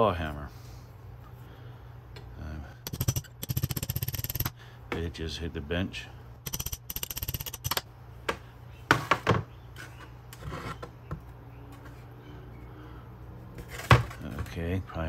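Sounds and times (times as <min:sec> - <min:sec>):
hammer tapping on steel punch: 0:02.9 - 0:04.5.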